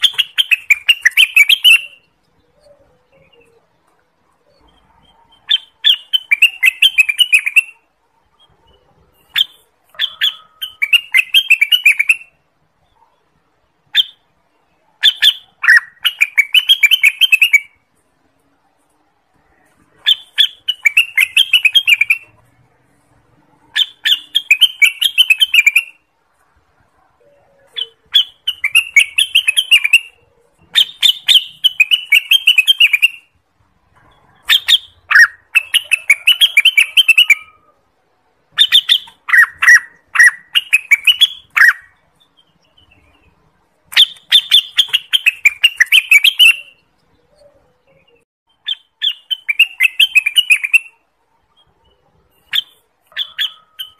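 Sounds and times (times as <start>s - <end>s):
bird chattering song: 0.0s - 18.0s, 19.5s - 22.5s, 23.6s - 33.4s, 34.0s - 37.8s, 38.5s - 53.9s.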